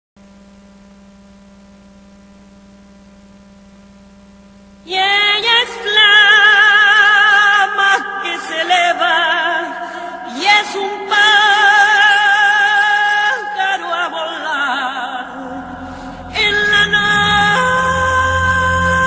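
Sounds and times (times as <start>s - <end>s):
low electrical hum: 0.2s - 7.4s, 15.2s - 19.0s
operatic singing voice: 4.9s - 19.0s.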